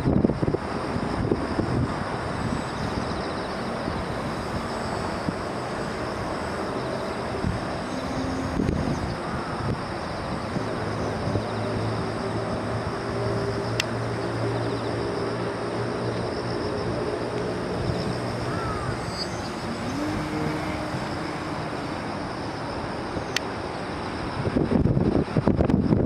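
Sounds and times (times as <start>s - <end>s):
electric model plane motor whining: 2.7s - 23.4s.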